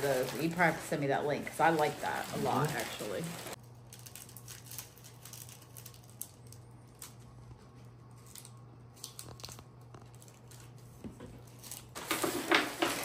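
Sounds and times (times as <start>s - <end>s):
low steady hum: 0.0s - 12.0s
small objects clicking and rustling: 2.3s - 7.2s.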